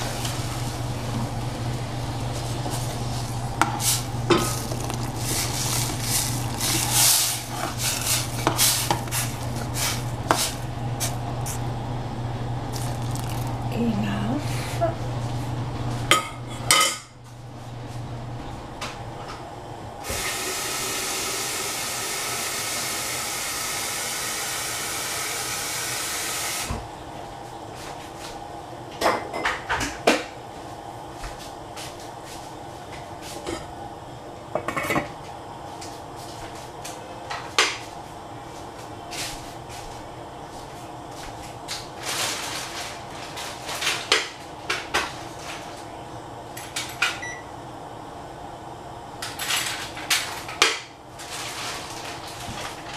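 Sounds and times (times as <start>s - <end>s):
pots and utensils clinking: 3.6s - 10.6s, 16.1s - 17.1s.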